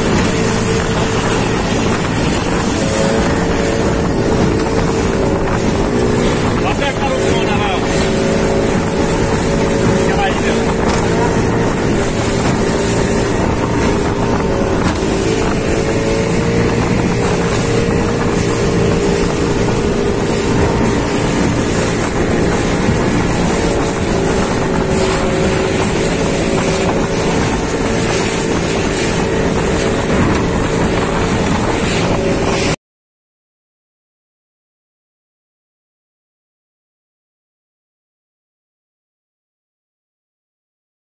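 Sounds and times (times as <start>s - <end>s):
motorboat engine droning: 0.0s - 32.8s
water rushing past hull: 0.0s - 32.8s
wind buffeting microphone: 0.0s - 32.8s.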